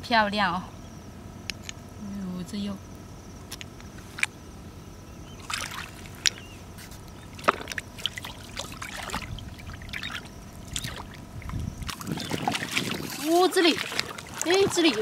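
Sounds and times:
seawater splashing and sloshing: 0:05.3 - 0:15.0.

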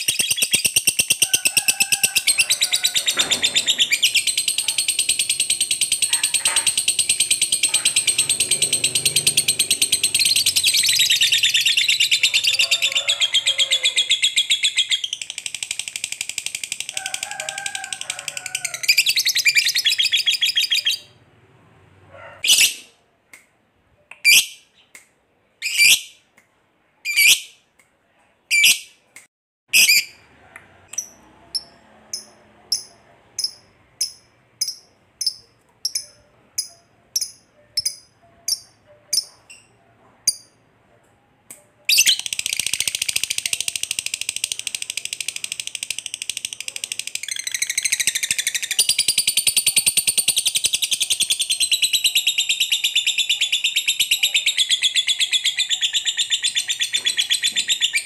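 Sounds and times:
lovebird rapid chatter: 0:00.0 - 0:12.6, 0:14.2 - 0:17.6, 0:41.9 - 0:52.1
lovebird chirping: 0:02.6 - 0:12.9, 0:18.9 - 0:21.2, 0:30.9 - 0:40.6.

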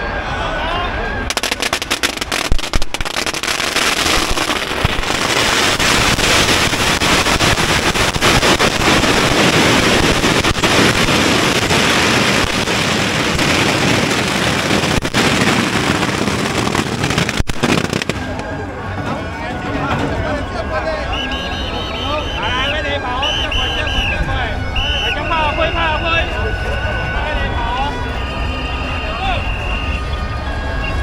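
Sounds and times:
firecrackers crackling: 0:01.3 - 0:19.0.

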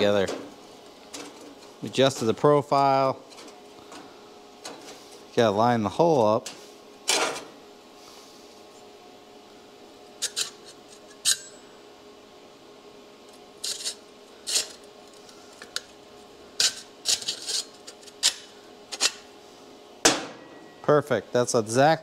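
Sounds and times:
steady low hum: 0:00.0 - 0:22.0
metal cutouts clinking and scraping: 0:13.6 - 0:14.8, 0:16.6 - 0:19.2.

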